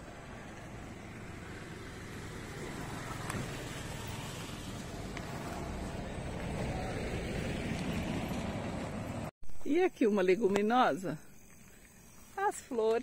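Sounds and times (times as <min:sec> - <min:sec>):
car passing on dirt road: 0:00.0 - 0:09.3.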